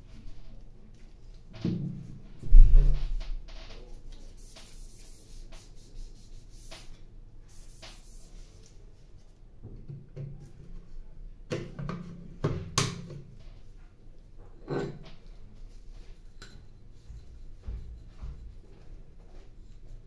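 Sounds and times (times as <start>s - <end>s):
soft rubbing: 3.8s - 9.4s.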